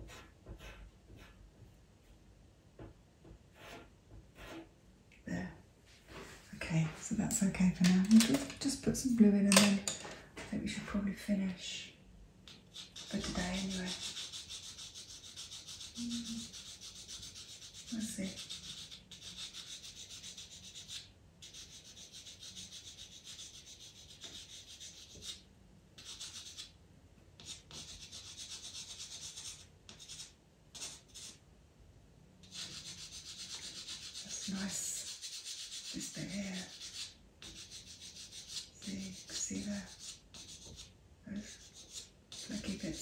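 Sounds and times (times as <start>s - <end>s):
pastel pencil scratching on paper: 0.0s - 2.2s, 3.5s - 4.7s, 12.5s - 25.4s, 26.0s - 26.7s, 27.4s - 31.4s, 32.5s - 43.0s.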